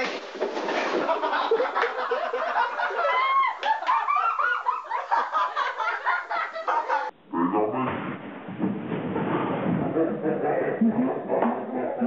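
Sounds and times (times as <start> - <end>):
group of people laughing: 0.7 - 7.1, 10.6 - 12.0.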